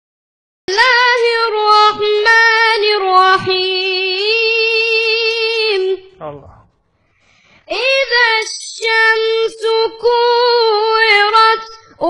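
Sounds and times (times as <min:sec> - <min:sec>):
high voice chanting recitation: 0:05.8 - 0:06.7, 0:07.7 - 0:12.0.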